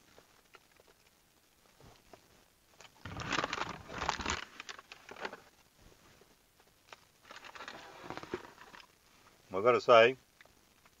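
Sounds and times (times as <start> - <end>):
paper bag crinkling and rustling: 3.0 - 5.5, 7.2 - 8.9.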